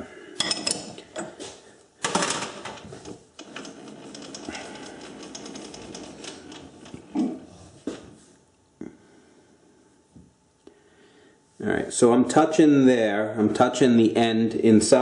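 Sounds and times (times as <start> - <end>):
lathe slide rattling and clicking: 3.4 - 7.0.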